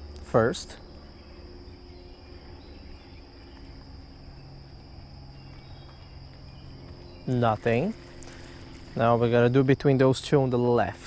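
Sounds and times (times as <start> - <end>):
high-pitched insect chorus: 0.0 - 11.0
low hum: 0.0 - 11.0.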